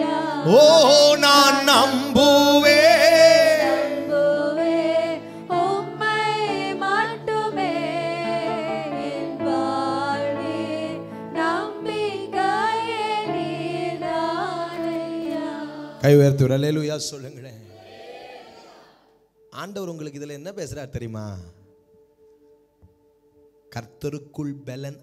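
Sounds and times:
sustained backing chords: 0.0s - 16.6s
man singing: 0.4s - 4.1s.

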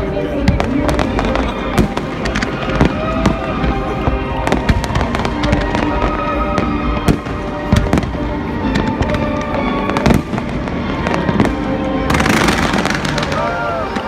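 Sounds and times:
music playing: 0.0s - 14.0s
fireworks bangs and pops: 0.4s - 14.0s.

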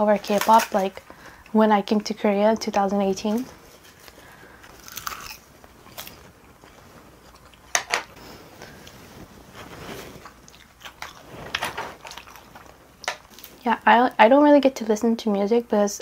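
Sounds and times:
wet chewing and smacking: 3.8s - 8.2s, 10.2s - 13.6s.

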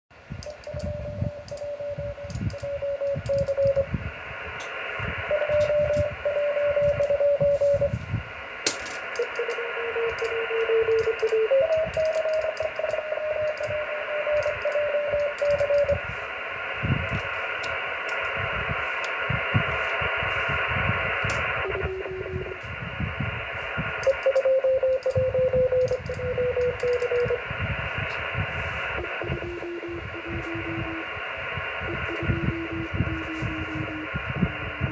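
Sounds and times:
radio receiver hiss: 0.2s - 34.9s
morse code beeping tone: 0.4s - 3.9s, 5.2s - 8.0s, 9.1s - 16.2s, 21.5s - 22.6s, 23.9s - 27.5s, 28.6s - 34.9s.

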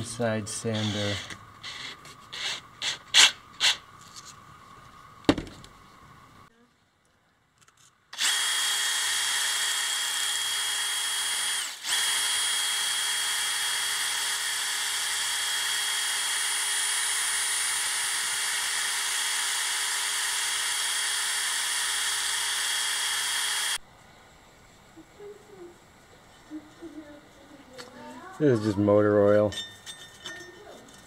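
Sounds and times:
drill motor whine: 0.7s - 2.6s, 8.2s - 23.8s.

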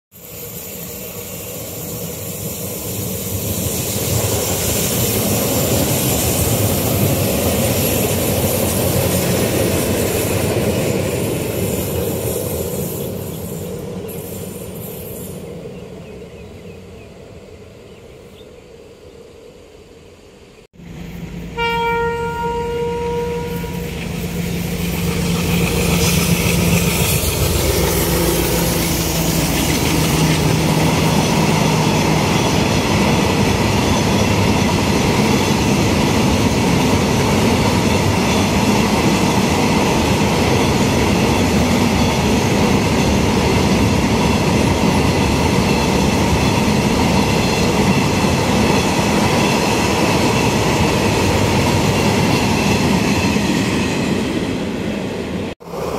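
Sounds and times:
electric train passing: 0.1s - 55.9s
diesel locomotive engine running: 20.8s - 54.8s
locomotive horn: 21.3s - 24.1s, 27.7s - 29.4s.

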